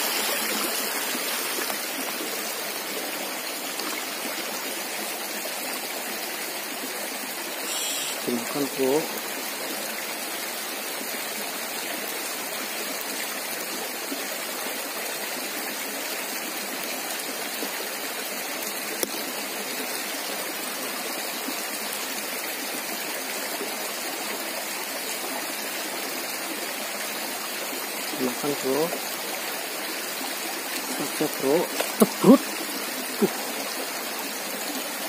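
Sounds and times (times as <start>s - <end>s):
stream flowing over rocks: 0.0s - 35.0s.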